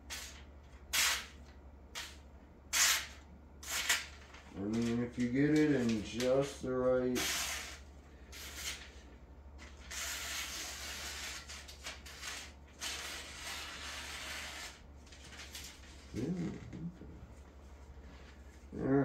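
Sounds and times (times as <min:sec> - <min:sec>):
paper scraping against blade: 0:02.8 - 0:05.0, 0:07.1 - 0:16.1.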